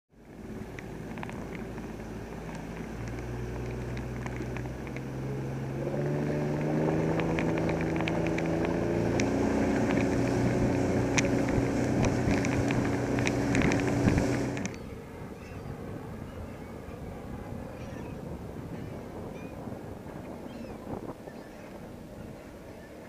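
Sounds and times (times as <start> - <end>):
outboard motor running: 0.2 - 23.0
water slapping against hull: 0.3 - 14.8.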